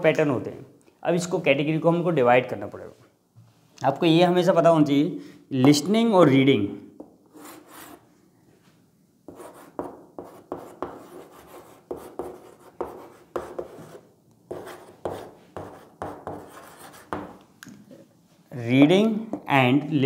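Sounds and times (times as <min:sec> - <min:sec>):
chalk scratching on blackboard: 0:07.3 - 0:08.0, 0:09.3 - 0:17.4.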